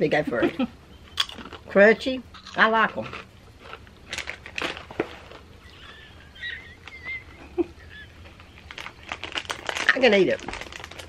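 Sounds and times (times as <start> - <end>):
chewing crunchy snack: 2.4 - 5.5, 8.3 - 11.0.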